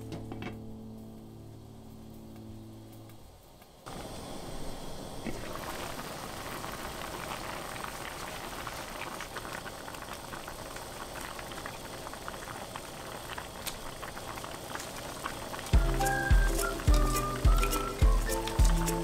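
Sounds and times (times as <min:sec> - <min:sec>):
soup boiling and bubbling: 0:03.8 - 0:19.0.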